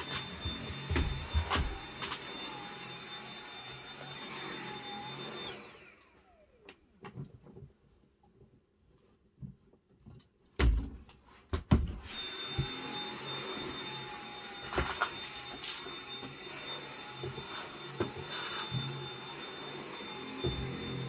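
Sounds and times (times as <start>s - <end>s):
stick vacuum cleaner whining: 0.0s - 7.7s, 11.8s - 21.0s.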